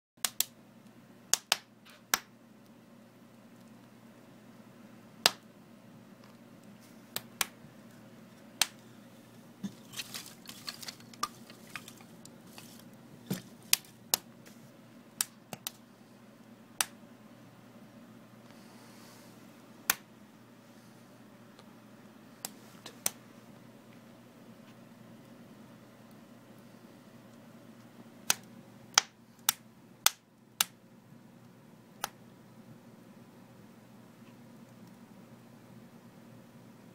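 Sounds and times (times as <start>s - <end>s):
wood fire crackling: 5.2s - 17.0s, 22.2s - 32.3s.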